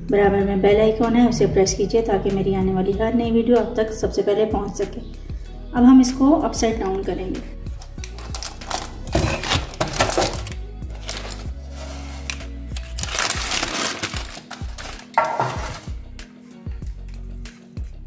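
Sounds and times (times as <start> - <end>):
background music: 0.0 - 18.0
baking parchment crinkling: 8.0 - 15.9
metal baking tins clinking: 15.0 - 15.9.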